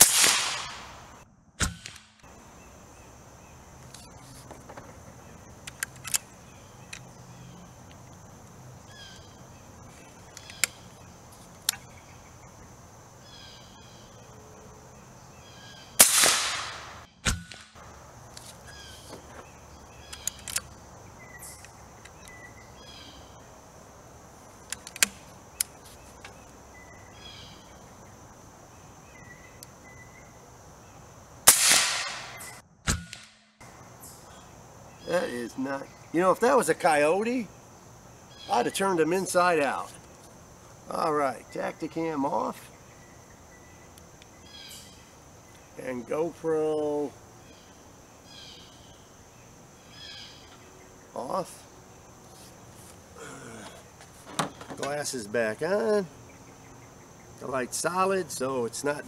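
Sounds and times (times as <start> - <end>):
air rifle shots: 0.0 - 2.2, 16.0 - 17.8, 31.4 - 33.5
rifle handling clicks: 5.6 - 6.3, 20.1 - 20.7, 24.6 - 25.8.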